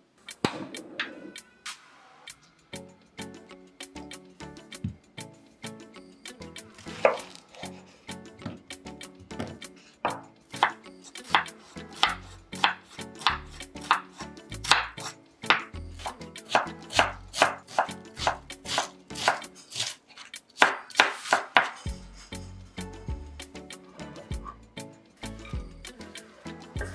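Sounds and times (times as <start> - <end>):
knife chopping onion on wood: 6.8 - 7.6, 9.3 - 22.0.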